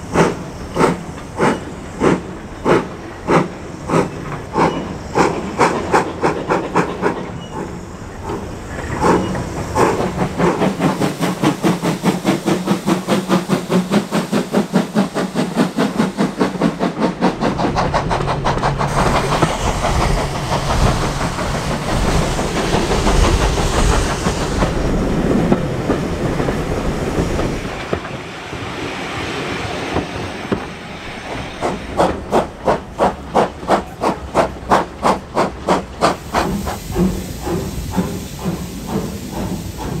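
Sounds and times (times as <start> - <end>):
carriages clattering on track: 0.0 - 28.5, 29.6 - 40.0
steam hissing: 0.0 - 40.0
steam locomotive chuffing: 0.0 - 40.0.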